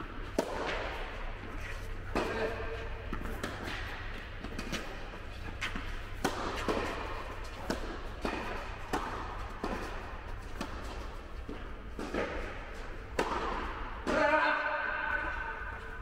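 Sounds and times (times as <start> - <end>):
tennis racket strikes and bounces: 2.1 - 14.4.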